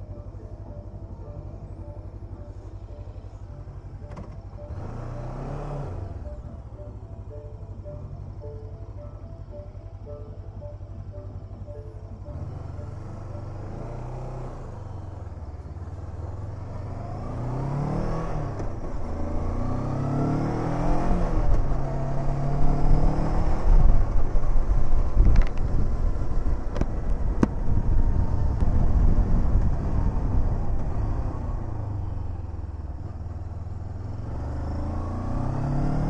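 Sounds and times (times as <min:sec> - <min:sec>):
motorcycle engine accelerating: 0:00.0 - 0:36.0
wind noise: 0:23.7 - 0:31.5.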